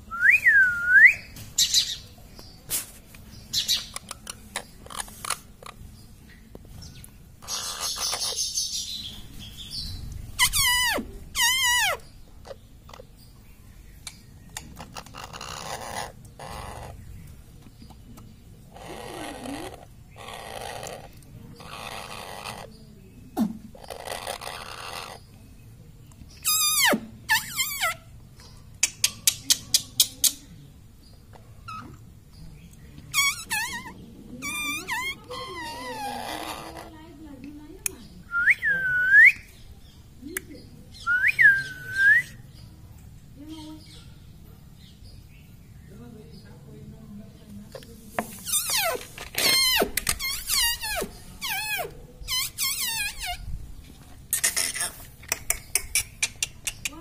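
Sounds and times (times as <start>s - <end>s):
parakeet raspy hissing: 7.4s - 8.4s, 18.7s - 22.7s, 23.8s - 25.2s.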